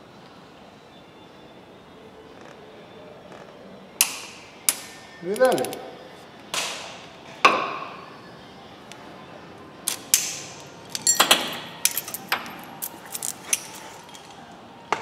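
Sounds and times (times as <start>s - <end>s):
metal tools clicking and rattling: 10.8s - 14.4s.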